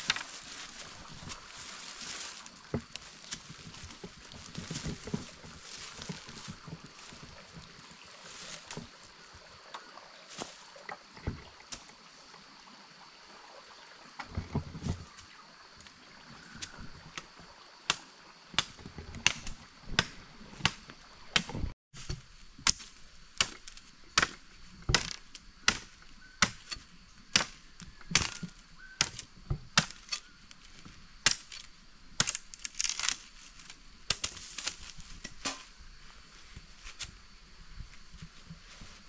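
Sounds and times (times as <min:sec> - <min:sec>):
machete chopping sapling: 0:00.0 - 0:07.7, 0:17.9 - 0:30.4, 0:31.2 - 0:35.8.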